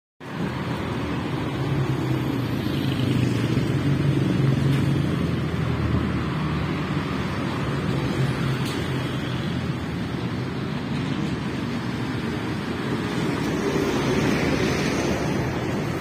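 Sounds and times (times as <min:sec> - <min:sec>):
cars passing with low rumble: 0:00.2 - 0:16.0.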